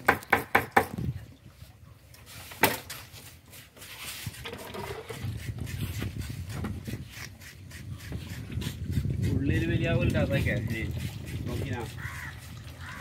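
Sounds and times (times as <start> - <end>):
sharp knocks: 0.0 - 1.0.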